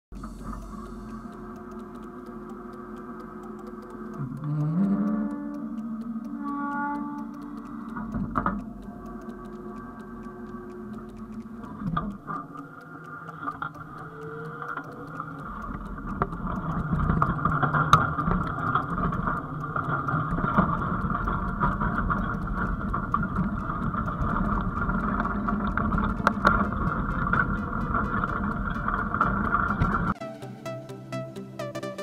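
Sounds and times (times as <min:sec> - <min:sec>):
sharp clicks: 0:00.2 - 0:32.0
tractor machine drone: 0:23.0 - 0:30.2.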